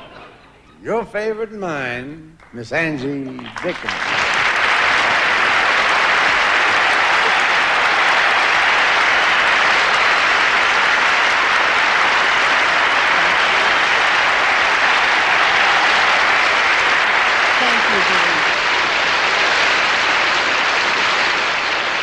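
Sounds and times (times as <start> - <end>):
audience applauding: 2.4 - 22.0.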